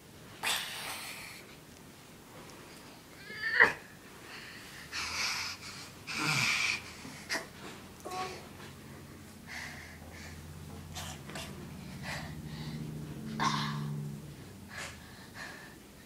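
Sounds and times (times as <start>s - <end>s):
child breathing hard: 4.2s - 14.0s, 14.6s - 16.0s
child strained vocal sound: 6.1s - 7.5s.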